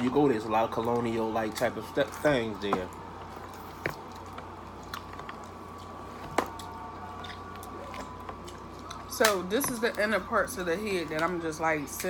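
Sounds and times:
chewing: 0.7 - 10.0.

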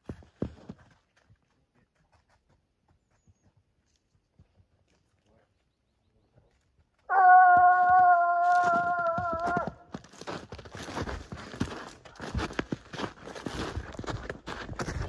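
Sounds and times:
footsteps in snow and leaves: 7.2 - 15.0.

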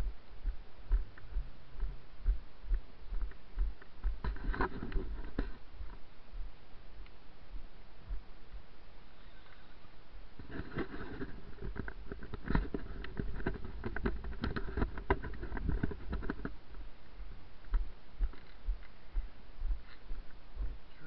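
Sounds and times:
footsteps thudding: 0.0 - 6.5
crackling clicks on frosty path: 0.0 - 7.2, 10.4 - 20.7.

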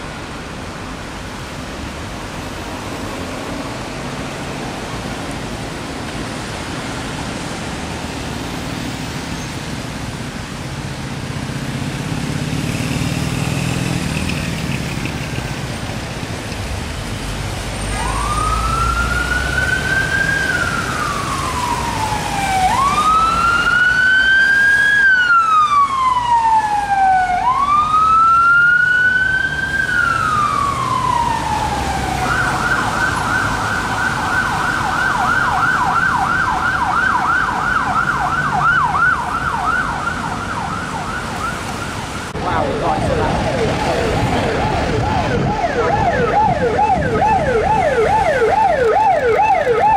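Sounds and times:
traffic engines and road noise: 0.0 - 49.9
emergency vehicle siren: 17.3 - 49.9.

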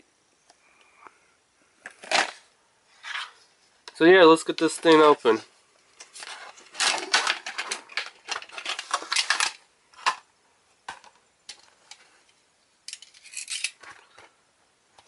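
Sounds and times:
plastic packaging crinkling: 6.0 - 10.2
plastic pieces clicking: 6.8 - 10.3.

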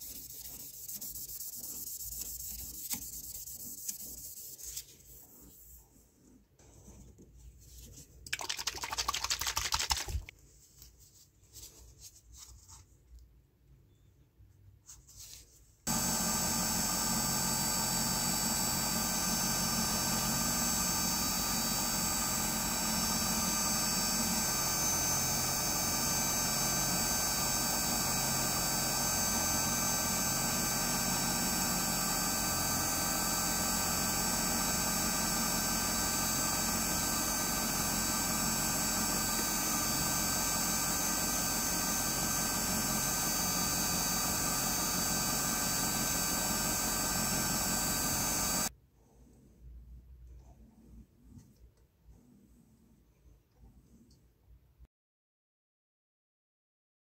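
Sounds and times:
wood lathe motor humming: 15.9 - 48.7.

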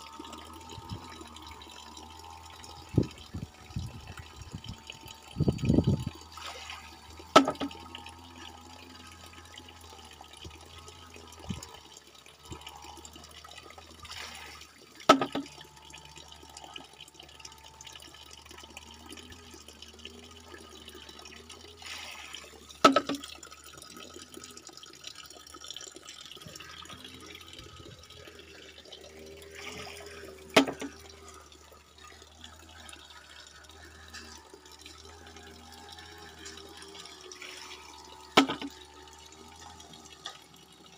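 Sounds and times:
water trickling: 0.0 - 40.9
bamboo knocking on log: 22.8 - 23.2.

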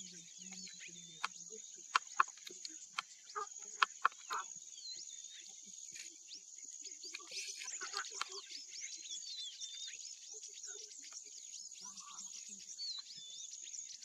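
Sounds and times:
birds whistling and chirping: 0.0 - 14.0
sharp clicks: 1.2 - 3.1, 3.7 - 4.4.

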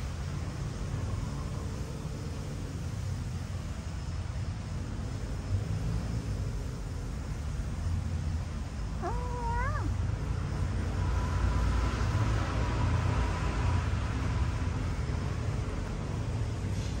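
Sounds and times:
cat meowing: 9.0 - 10.0.

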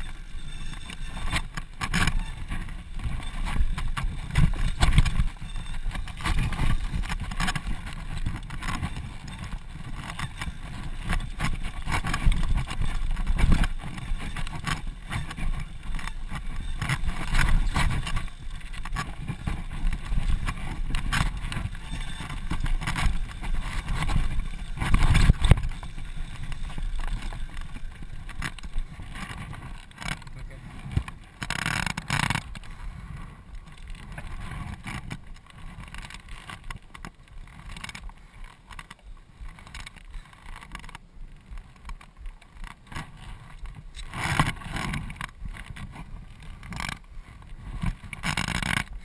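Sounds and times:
wind buffeting microphone: 0.0 - 31.4
bike rattling and knocking: 0.0 - 49.0.

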